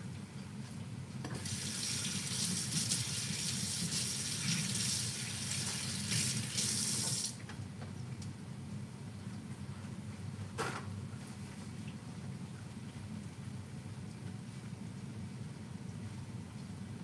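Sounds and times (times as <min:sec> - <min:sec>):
faucet running into sink: 0:01.4 - 0:07.4.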